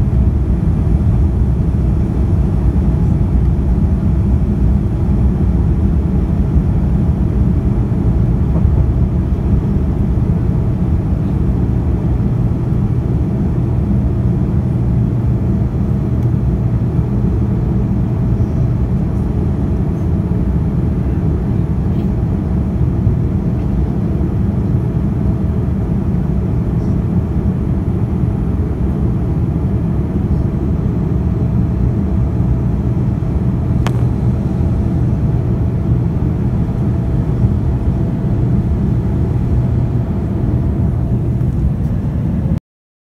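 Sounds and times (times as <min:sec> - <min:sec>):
jet engine rumble in airliner cabin: 0:00.0 - 0:42.6
faint click: 0:33.8 - 0:34.1.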